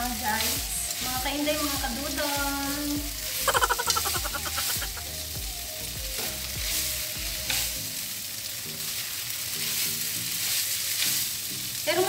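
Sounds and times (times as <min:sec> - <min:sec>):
noodles sizzling in frying pan: 0:00.0 - 0:12.0.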